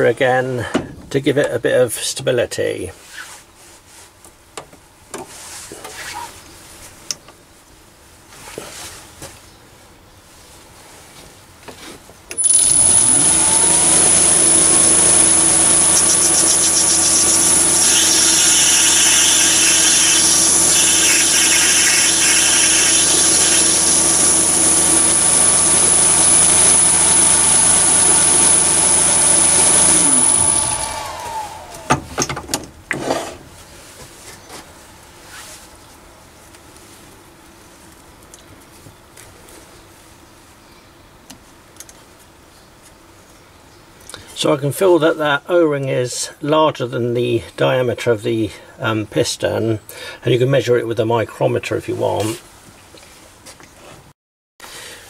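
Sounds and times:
lathe motor whining: 0:12.3 - 0:32.1
lathe tool cutting brass: 0:12.4 - 0:31.9.

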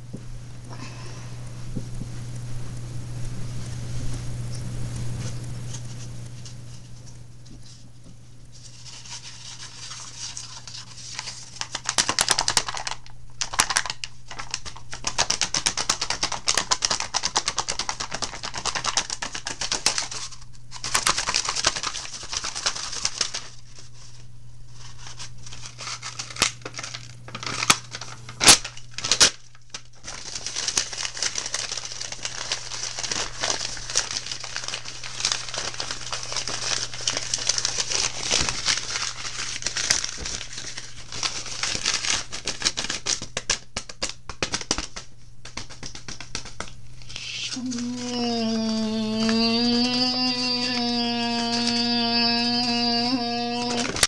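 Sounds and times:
steady low hum: 0:00.0 - 0:11.7
crackling and rustling: 0:01.4 - 0:54.0.

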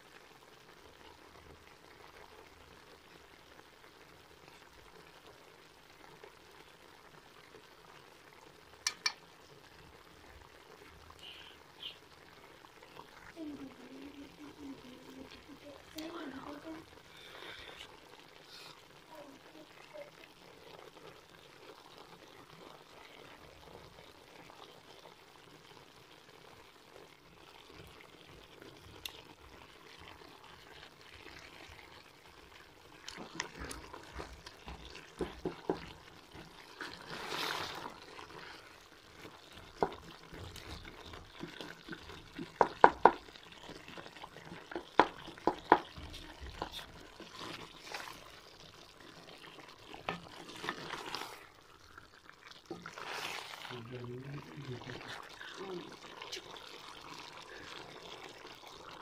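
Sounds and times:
food sizzling in a pot: 0:00.0 - 0:59.0
spoon knocking against pot: 0:08.9 - 0:09.2, 0:42.6 - 0:43.2, 0:44.8 - 0:46.0.

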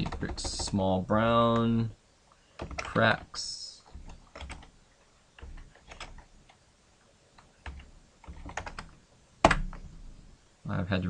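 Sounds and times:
keyboard typing: 0:00.0 - 0:00.8, 0:02.6 - 0:06.6, 0:07.4 - 0:09.9.

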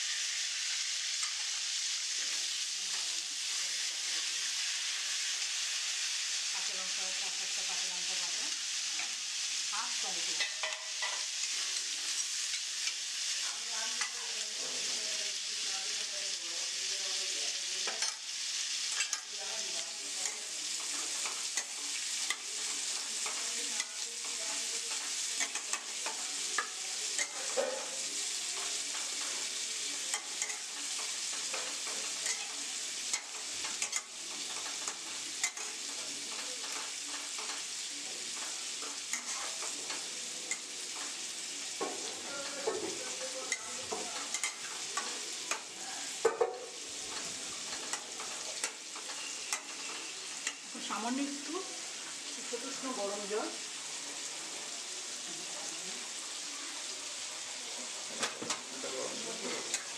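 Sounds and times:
spice paste sizzling in oil: 0:00.0 - 0:59.9
steel spatula scraping a pan: 0:20.2 - 0:37.6, 0:38.3 - 0:41.0, 0:46.7 - 0:51.0.

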